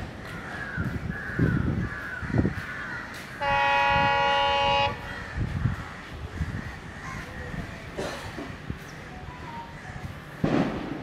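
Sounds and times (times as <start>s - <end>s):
crows cawing: 0.1s - 3.6s, 4.9s - 7.5s
locomotive horn blast: 3.4s - 5.1s.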